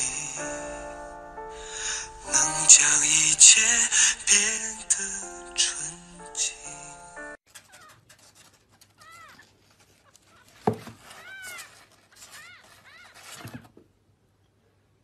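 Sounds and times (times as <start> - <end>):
scratching on cardboard: 7.5 - 13.8.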